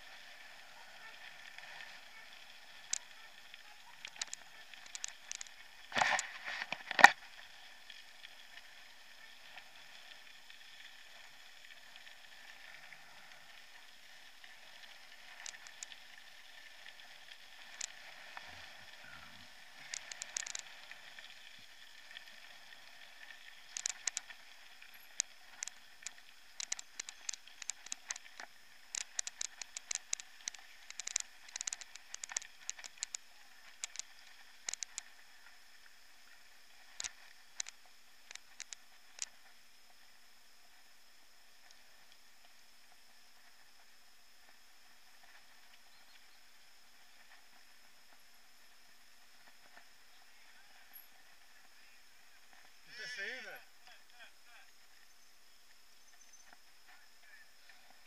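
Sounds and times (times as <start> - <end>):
bike tyres on gravel hiss: 0.0 - 41.0, 41.8 - 55.5
bike rattling clicks: 26.6 - 33.2.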